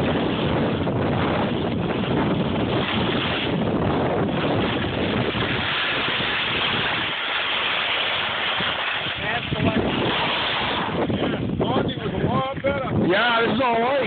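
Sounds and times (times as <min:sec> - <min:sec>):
wind rushing over microphone: 0:00.0 - 0:14.0
skis hissing over snow: 0:04.7 - 0:09.3.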